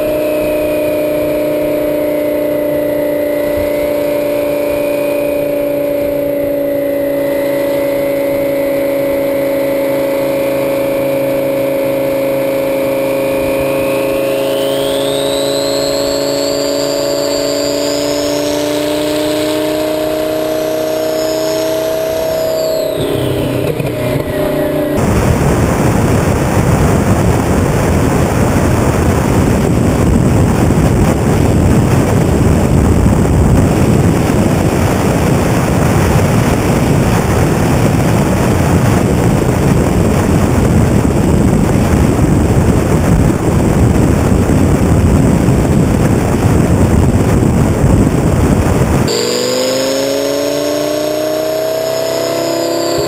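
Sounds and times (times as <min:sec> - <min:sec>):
sports car engine cruising: 0:00.0 - 0:53.0
wind noise on microphone: 0:00.0 - 0:53.0
turbo whistle: 0:14.0 - 0:19.6, 0:20.7 - 0:24.7, 0:49.1 - 0:53.0.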